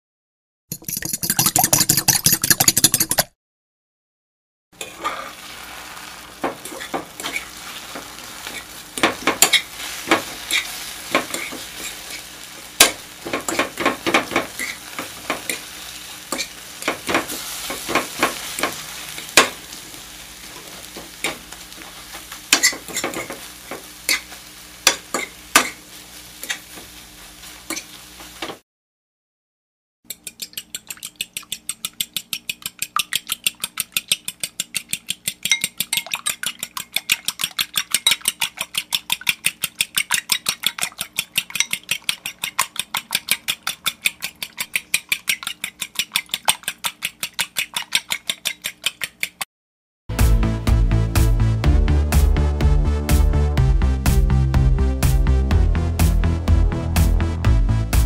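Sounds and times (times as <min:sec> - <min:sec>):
eggs sizzling in a pan: 0:04.8 - 0:28.6, 0:30.4 - 0:49.3.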